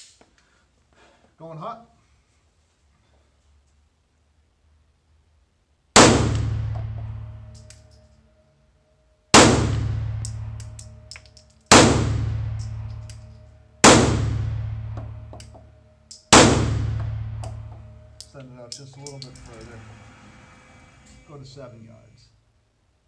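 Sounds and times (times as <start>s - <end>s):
pistol shots echoing indoors: 5.9s - 8.2s, 9.3s - 19.7s
light metallic clinks: 10.2s - 11.7s, 17.4s - 19.8s.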